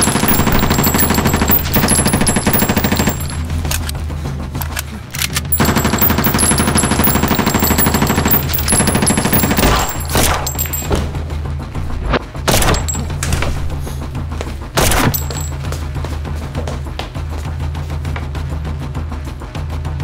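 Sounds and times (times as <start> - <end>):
rapid automatic gunfire: 0.0 - 3.6, 5.5 - 10.8.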